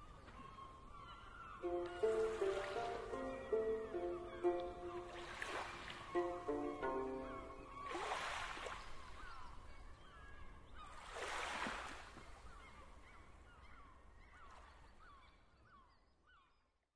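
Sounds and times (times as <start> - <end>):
birds crying: 0.0 - 11.0.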